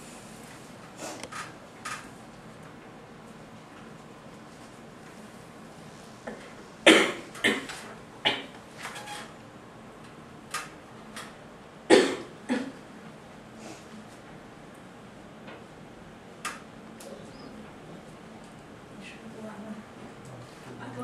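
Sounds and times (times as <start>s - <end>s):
person coughing: 6.9s - 7.7s, 11.9s - 12.8s.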